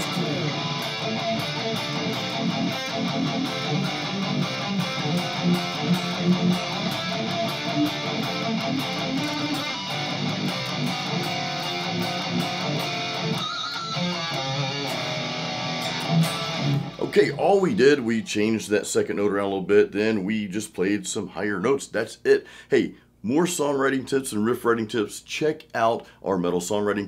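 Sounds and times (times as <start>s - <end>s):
distorted electric guitar riff: 0.0s - 17.4s.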